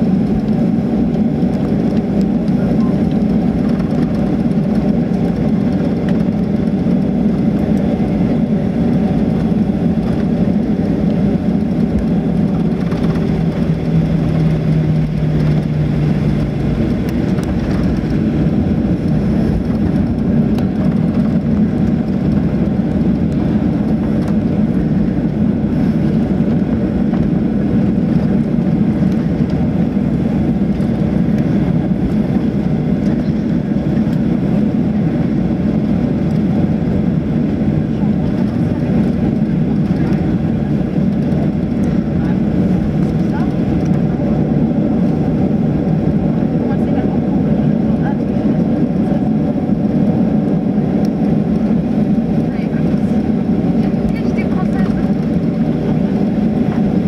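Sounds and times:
airplane cabin engine noise: 0.0s - 57.0s.

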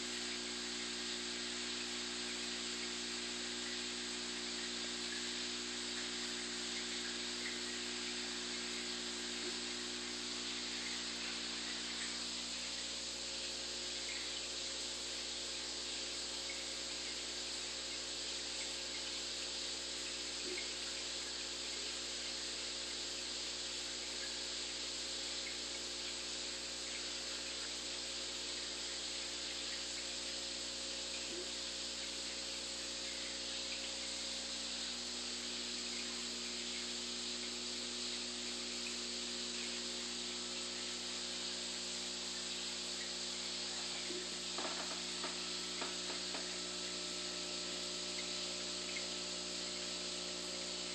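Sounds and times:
low equipment hum: 0.0s - 24.4s, 25.2s - 50.9s
hiss of moving water: 23.6s - 50.9s.

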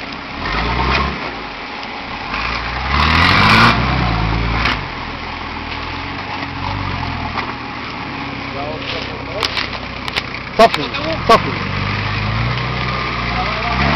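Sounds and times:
engine revving under load: 0.3s - 1.5s, 2.1s - 5.0s, 10.5s - 13.9s.

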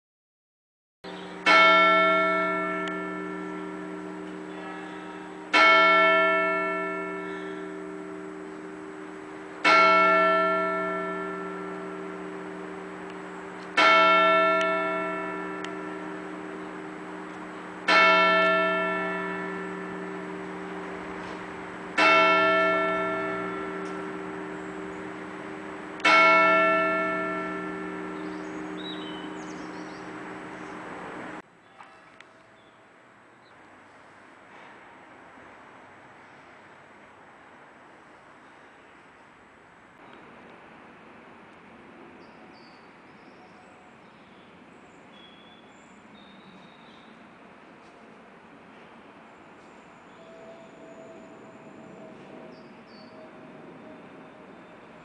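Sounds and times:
church bell tolling: 1.1s - 31.4s.

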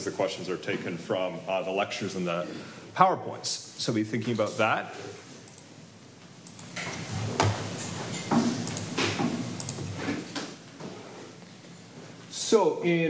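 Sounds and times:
objects clunking on desk: 6.8s - 11.0s.

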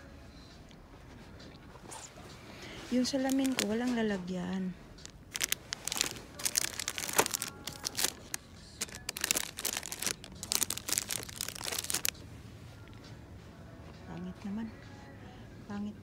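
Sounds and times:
plastic packaging crinkling: 3.0s - 4.0s, 5.0s - 12.2s.

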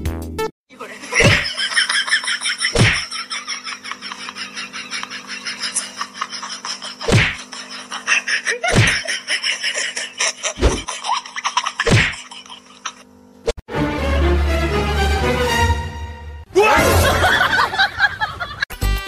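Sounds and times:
loud sharp whacks: 1.2s - 1.5s, 2.7s - 3.0s, 7.0s - 7.4s, 8.7s - 9.0s, 11.8s - 12.2s
background music: 13.7s - 17.7s.

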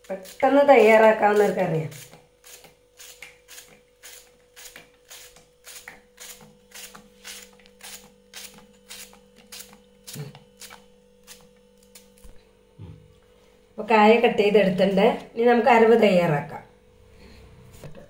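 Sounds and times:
knife slicing plantain: 1.4s - 12.3s.

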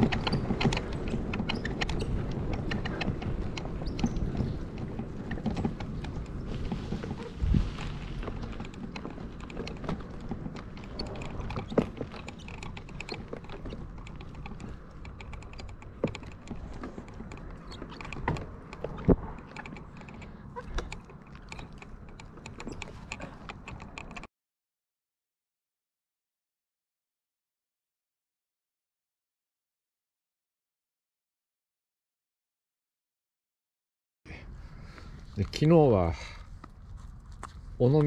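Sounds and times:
bicycle rattling over gravel: 0.0s - 24.2s.

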